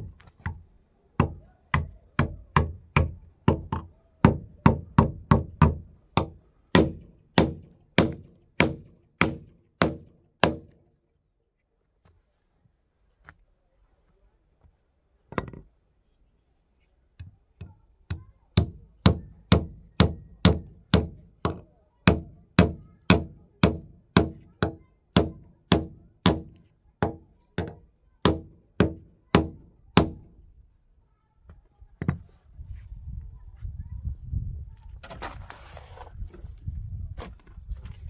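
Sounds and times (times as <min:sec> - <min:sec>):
hammer blows on wooden post: 0:17.2 - 0:30.4.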